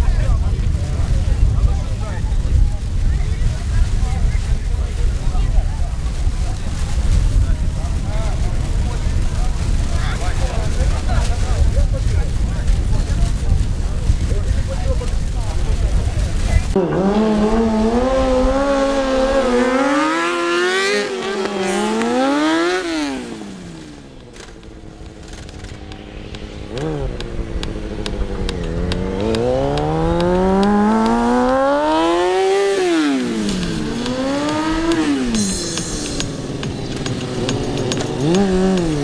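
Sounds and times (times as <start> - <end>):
motorcycle engine revving: 16.0 - 39.0.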